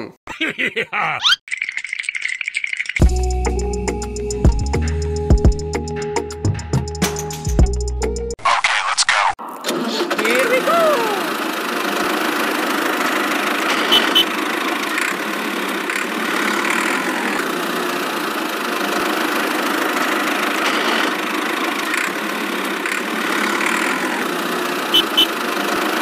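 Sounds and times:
tractor engine idling: 9.7 - 26.0.

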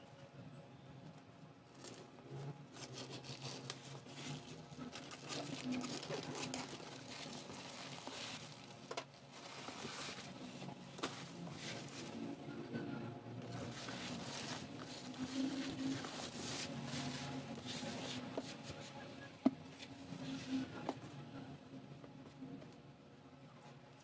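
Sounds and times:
scissors cutting plastic: 2.7 - 10.4
plastic bag crinkling and tearing: 2.7 - 12.1.

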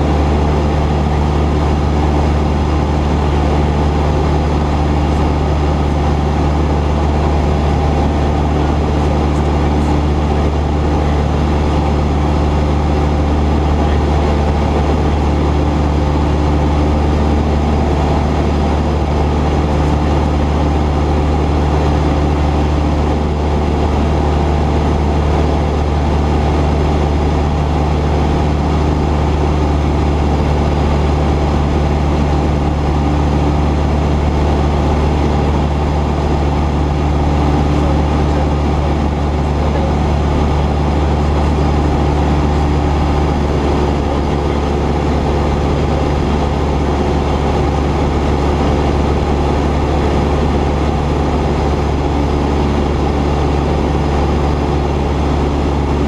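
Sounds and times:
airplane engine drone: 0.0 - 56.0.

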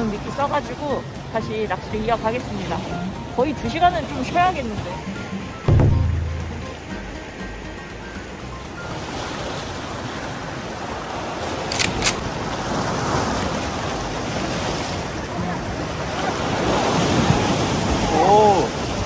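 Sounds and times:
surf washing against rocks: 0.0 - 19.0
sharp clicks: 11.7 - 12.2.

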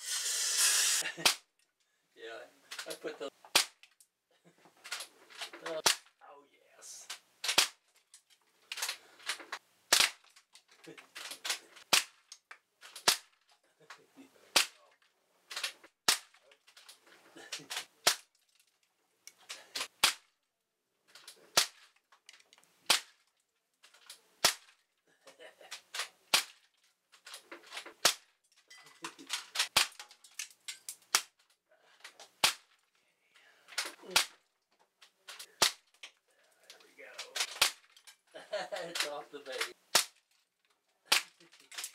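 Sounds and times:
pellets hitting plastic target: 2.7 - 3.8, 4.9 - 6.1, 7.1 - 7.8, 8.7 - 10.4, 11.1 - 13.5, 14.5 - 14.9, 15.5 - 18.3, 19.5 - 20.3, 21.2 - 21.9, 22.8 - 23.2, 23.9 - 24.8, 25.7 - 26.6, 27.2 - 28.4, 29.2 - 31.4, 32.2 - 32.8, 33.8 - 34.4, 35.2 - 36.1, 37.2 - 38.0, 38.9 - 40.2, 41.0 - 41.9
air rifle sharp cracks: 3.5 - 3.8, 7.4 - 7.8, 8.7 - 10.2, 11.2 - 12.2, 14.5 - 14.8, 15.5 - 16.4, 19.5 - 20.3, 21.5 - 21.8, 22.9 - 23.2, 24.4 - 24.7, 26.0 - 26.6, 29.6 - 30.0, 32.4 - 32.7, 33.8 - 34.4, 35.5 - 35.8, 37.4 - 37.8, 39.9 - 40.2, 41.1 - 41.9.

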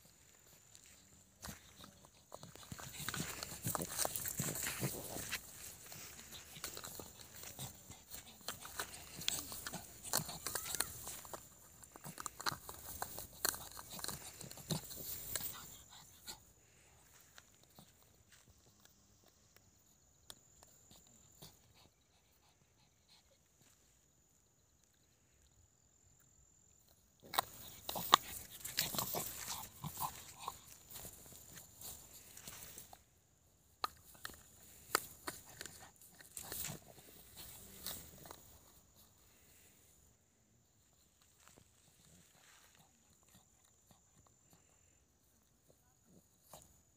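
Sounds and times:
dog chewing and crunching: 0.0 - 16.8, 27.1 - 33.0, 33.8 - 39.0, 41.8 - 44.8
dog rustling dry grass: 0.2 - 15.6.

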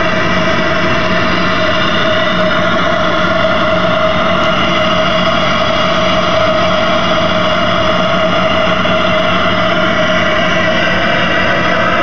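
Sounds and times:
constant hum: 0.0 - 12.0
engine heater whistling: 0.0 - 12.0.

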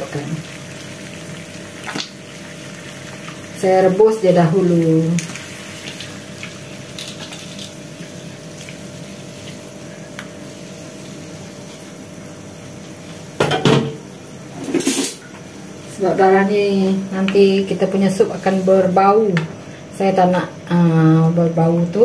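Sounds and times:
steady hum: 0.0 - 22.0.

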